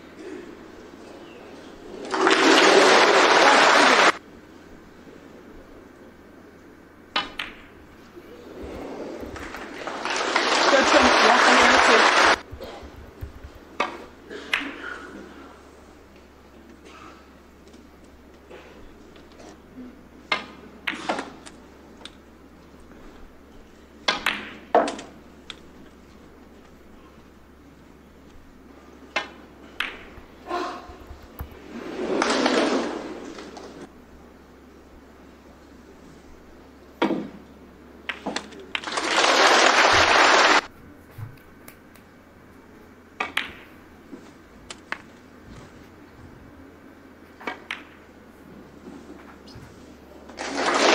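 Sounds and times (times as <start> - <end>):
audience applause: 2.0 - 4.2, 9.2 - 12.5, 38.7 - 40.7, 50.4 - 50.9
snooker balls clicking: 6.6 - 15.2, 20.2 - 33.9, 37.0 - 40.7, 43.1 - 45.7, 47.2 - 48.3.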